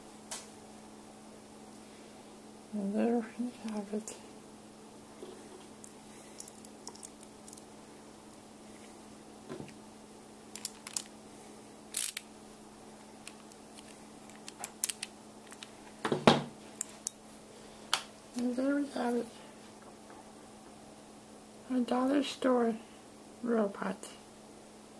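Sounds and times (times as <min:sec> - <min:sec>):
low steady hum: 0:00.0 - 0:24.9.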